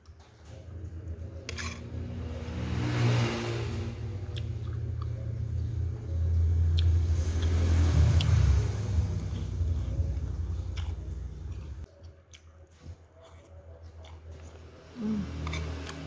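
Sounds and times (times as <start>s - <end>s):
passing road vehicles rumble: 0.8s - 11.9s, 14.5s - 16.0s.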